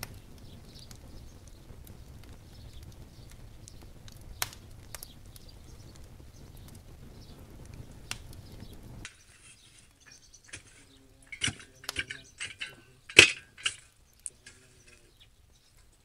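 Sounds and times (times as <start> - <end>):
fire crackling: 0.0 - 16.0
shovel scraping through embers: 9.0 - 15.2.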